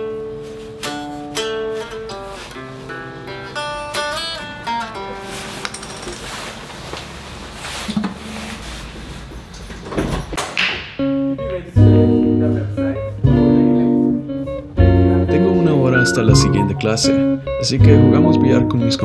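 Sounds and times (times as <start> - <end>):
guitar music: 0.0 - 5.7, 11.0 - 19.0
bass line: 11.8 - 18.9.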